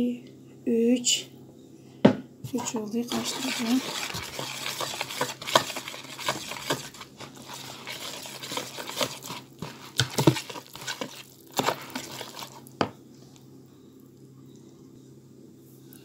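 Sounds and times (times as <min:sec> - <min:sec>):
wire whisk scraping plastic bowl: 0:02.5 - 0:12.7.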